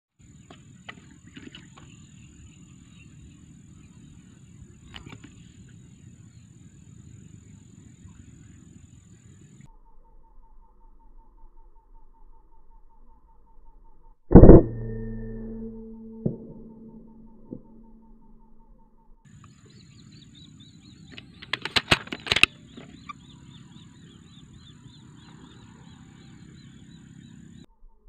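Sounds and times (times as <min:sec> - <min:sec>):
faint rhythmic chirping: 0:00.2 - 0:28.0
rifle shot: 0:14.3 - 0:17.8
loud sharp clicks: 0:21.1 - 0:23.2.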